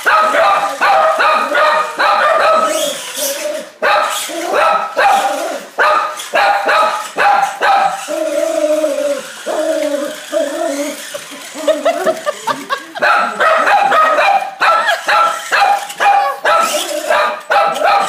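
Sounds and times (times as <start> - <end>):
small dog barking: 0.0 - 3.0, 3.8 - 8.0, 13.0 - 18.0
dog yipping: 0.0 - 12.4, 13.0 - 18.0
dog whining: 0.3 - 18.0.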